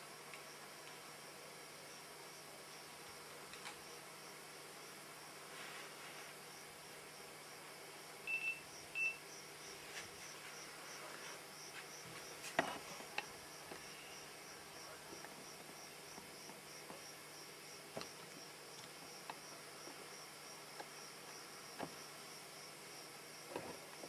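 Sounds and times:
cricket chirping: 6.5 - 24.0.

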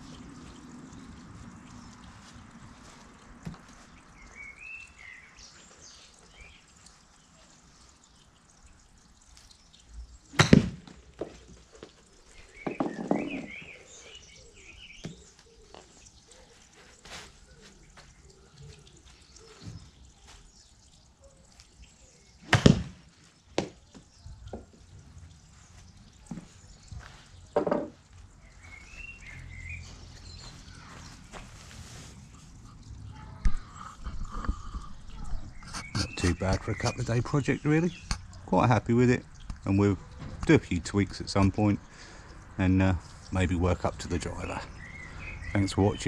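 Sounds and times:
golf club striking ball: 10.3 - 11.0, 22.5 - 23.0
ball hitting tarp backstop: 10.3 - 11.4, 22.4 - 23.8.

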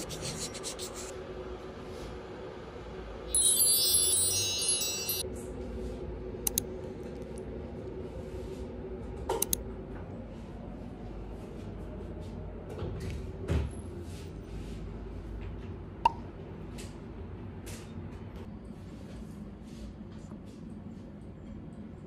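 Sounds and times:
low room hum: 0.0 - 22.0
sparkly chime: 3.3 - 5.2.

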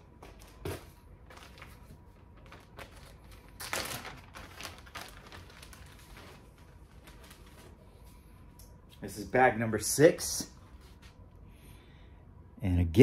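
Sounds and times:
plastic bag crinkling: 0.3 - 7.8.

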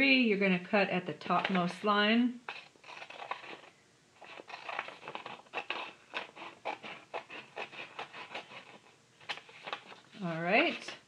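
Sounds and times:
scissors snipping paper: 2.5 - 11.0.

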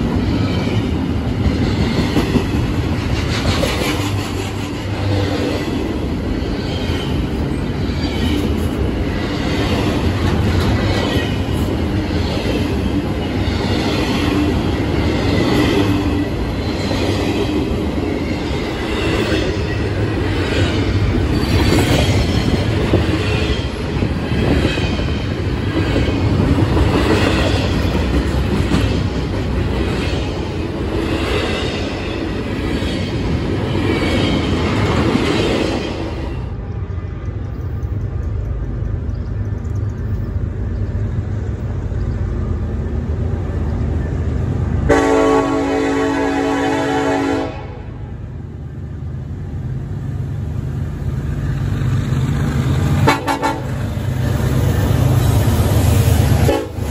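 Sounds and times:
wheels clacking over rail joints: 0.0 - 36.2
freight train wheels rumbling: 0.0 - 56.9.

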